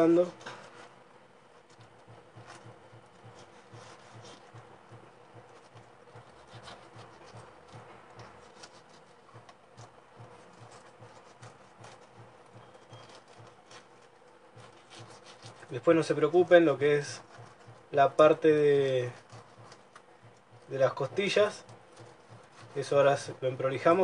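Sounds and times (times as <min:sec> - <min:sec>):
knife scraping fish fillet: 0:01.6 - 0:24.0.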